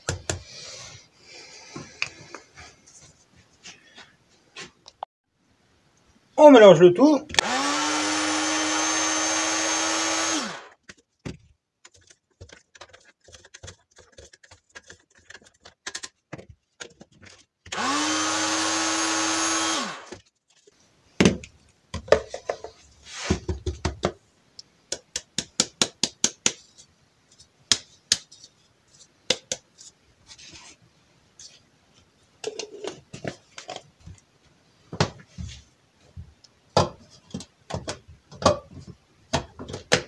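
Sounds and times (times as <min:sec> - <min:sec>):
electric blender motor hum: 0:07.4 - 0:10.7, 0:17.7 - 0:20.2.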